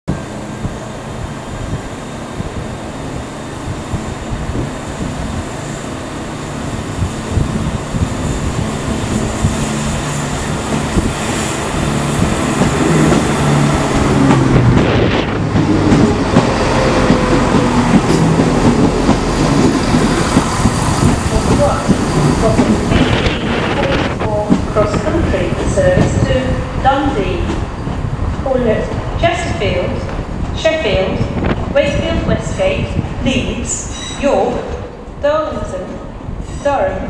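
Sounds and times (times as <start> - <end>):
diesel train engine: 0.1 - 37.0
faint squeal: 36.4 - 36.8.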